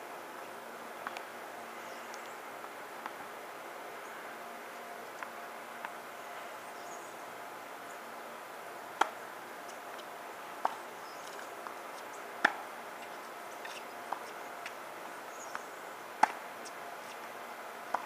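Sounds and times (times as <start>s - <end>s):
tennis ball bouncing: 9.0s - 9.2s, 12.4s - 12.6s, 16.2s - 16.4s
tennis ball hitting racket: 16.2s - 16.4s.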